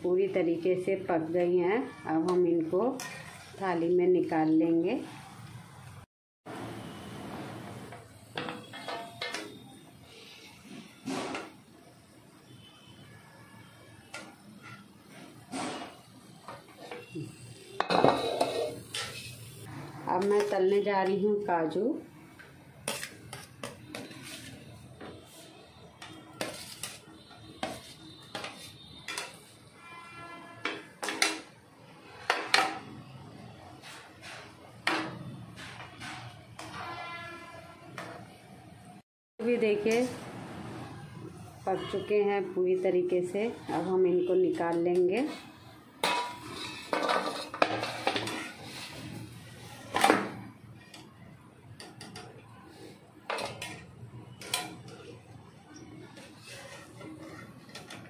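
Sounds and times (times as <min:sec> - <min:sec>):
steel utensils clinking on pan: 0:08.4 - 0:09.7, 0:17.8 - 0:19.5, 0:26.0 - 0:30.0, 0:46.0 - 0:49.2, 0:53.3 - 0:55.2.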